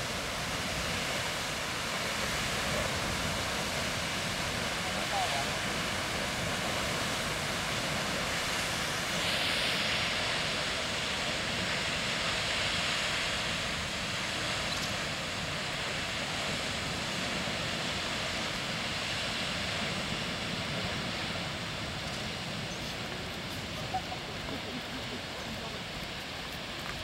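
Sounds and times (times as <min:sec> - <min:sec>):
geyser water and steam rushing: 0:00.0 - 0:27.0.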